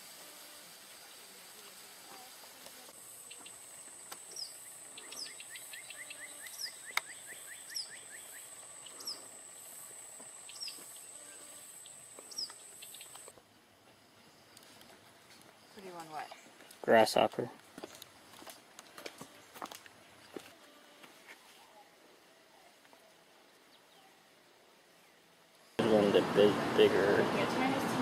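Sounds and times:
high insect whine: 0:02.8 - 0:14.8
rising bird chirps: 0:03.2 - 0:09.7, 0:10.4 - 0:13.3.

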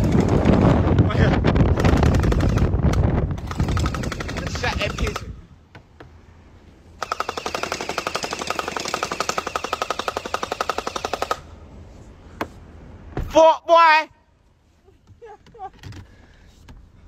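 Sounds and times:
gel ball blaster full-auto burst: 0:01.7 - 0:05.4, 0:07.0 - 0:11.4.

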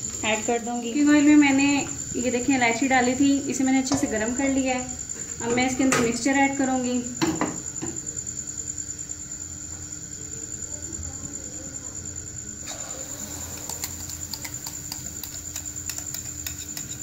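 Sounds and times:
batter sizzling in hot oil: 0:12.6 - 0:17.0.

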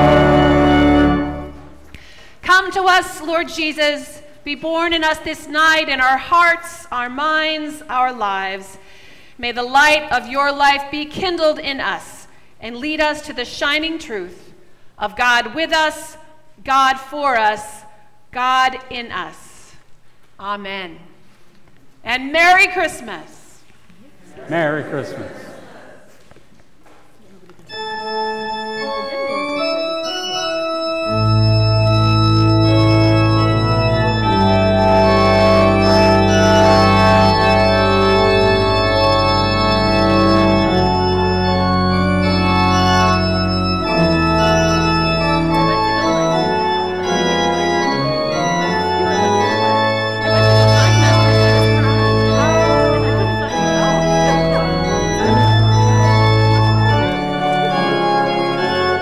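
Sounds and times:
church organ chords: 0:00.0 - 0:01.9, 0:27.7 - 0:59.0
deep organ pedal notes: 0:00.0 - 0:01.9, 0:27.7 - 0:59.0.

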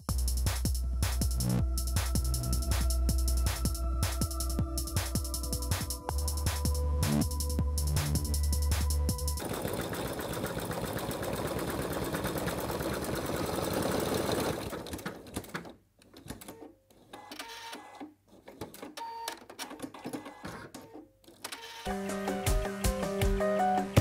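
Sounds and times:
sewing machine stitching: 0:09.4 - 0:21.9.

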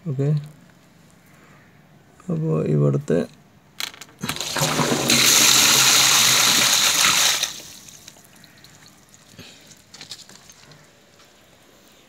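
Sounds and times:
water gushing from a downpipe: 0:04.2 - 0:09.3
faint water drips: 0:07.8 - 0:10.7.

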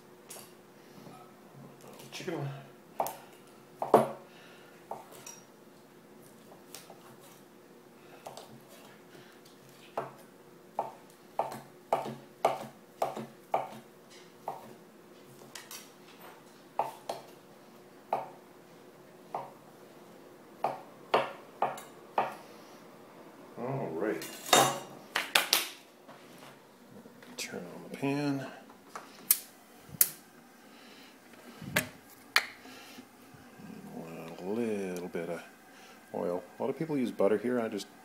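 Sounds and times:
knife chopping on cutting board: 0:10.8 - 0:14.8.

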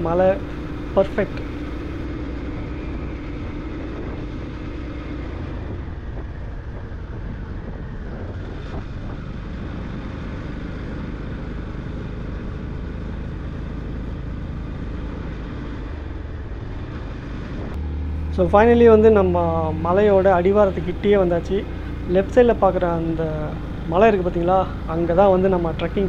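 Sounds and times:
motorcycle engine riding: 0:00.0 - 0:26.0
wind rush on microphone: 0:00.2 - 0:13.5.

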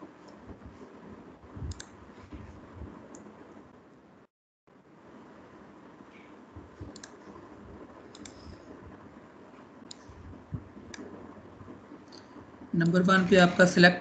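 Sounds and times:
low steady hiss: 0:00.0 - 0:14.0
computer mouse clicks: 0:01.7 - 0:02.0, 0:06.9 - 0:07.2, 0:08.1 - 0:08.6, 0:09.8 - 0:10.1.

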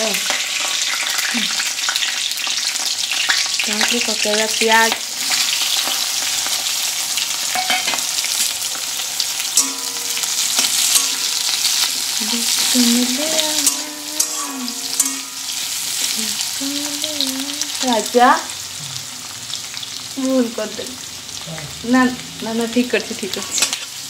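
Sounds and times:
onions sizzling in hot oil: 0:00.0 - 0:24.0
metal spatula scraping pan: 0:05.3 - 0:17.0, 0:23.2 - 0:24.0.

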